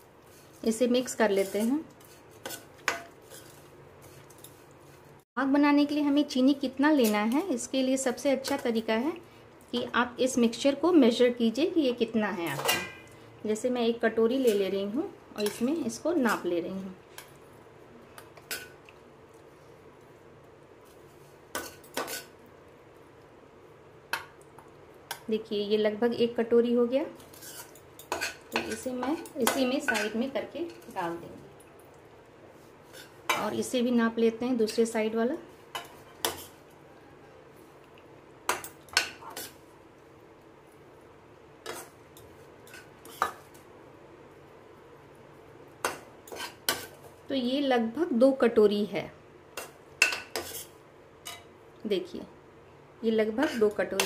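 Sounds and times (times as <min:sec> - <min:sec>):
spoon scraping: 0:00.3 - 0:05.1, 0:27.2 - 0:31.0.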